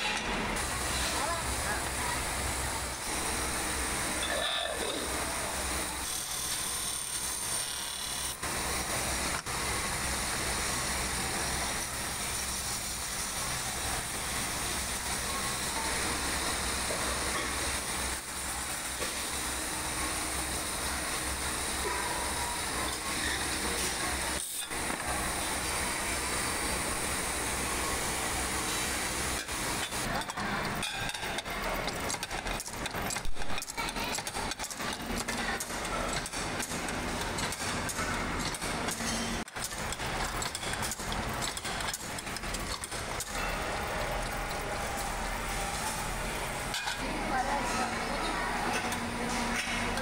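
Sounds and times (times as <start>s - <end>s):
factory machinery running: 0.0s - 50.0s.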